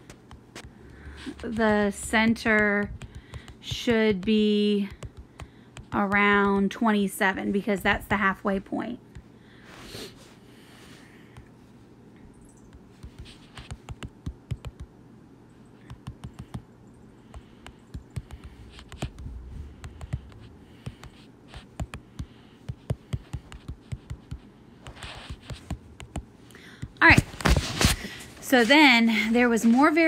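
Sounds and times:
taps on touchscreen keyboard: 0.0 - 6.8, 12.7 - 14.9, 15.8 - 16.7, 17.3 - 27.0.

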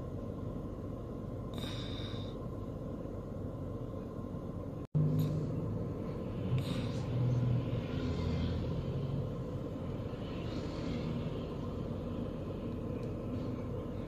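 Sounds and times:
road traffic noise: 5.0 - 14.0.

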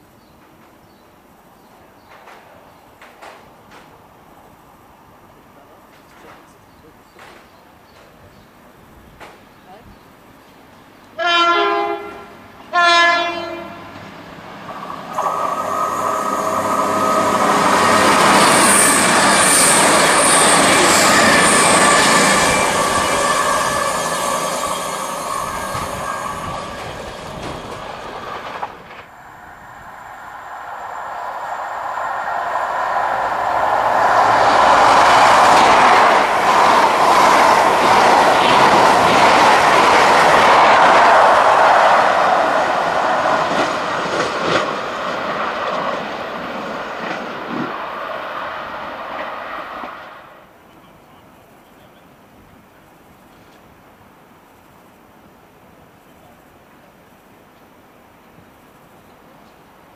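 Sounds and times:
diesel train passing at speed: 8.6 - 59.9
train wheels rattling: 14.7 - 50.0.

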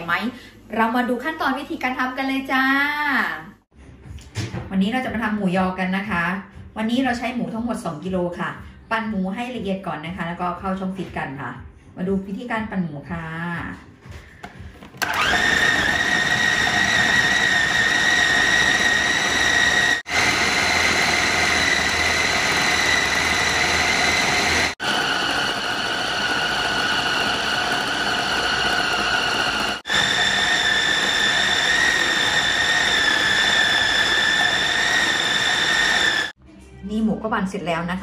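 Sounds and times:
food processor grinding meat: 15.0 - 36.4.

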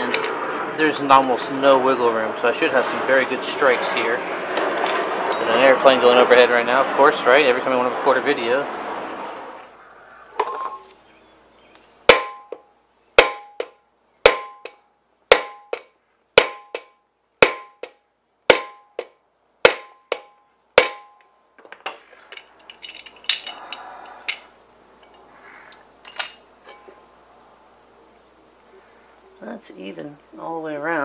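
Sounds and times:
hammer striking metal: 12.1 - 12.6, 13.2 - 21.2
light metal clinks: 22.3 - 25.3, 26.0 - 27.0.

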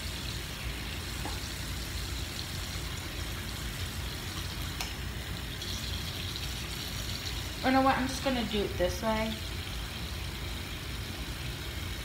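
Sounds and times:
tap water running into sink: 1.0 - 11.9.

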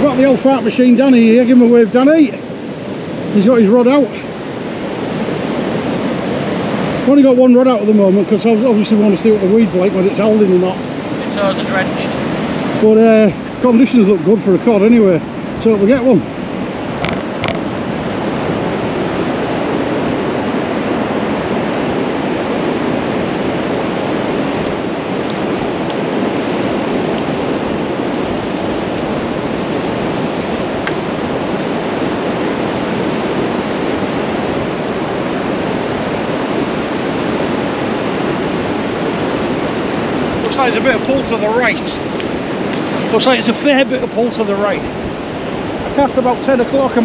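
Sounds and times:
surf breaking on shore: 0.0 - 47.0
wind on microphone: 0.0 - 47.0.

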